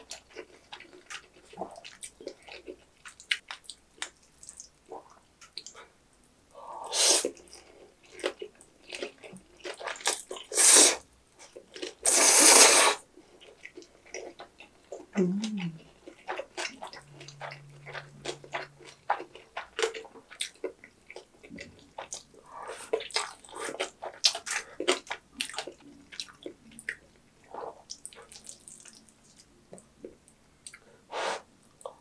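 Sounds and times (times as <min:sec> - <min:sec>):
noodle slurping: 0:12.0 - 0:13.0
wet chewing clicks: 0:13.4 - 0:30.9.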